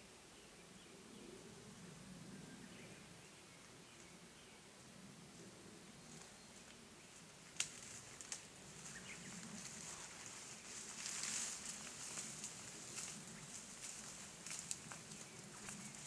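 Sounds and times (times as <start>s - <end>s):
rustling in dry undergrowth: 5.3s - 16.0s.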